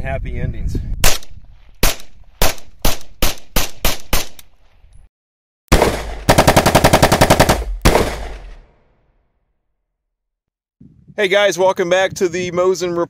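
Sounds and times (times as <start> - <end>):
automatic gunfire: 5.7 - 8.7
submachine gun shots: 5.7 - 8.7.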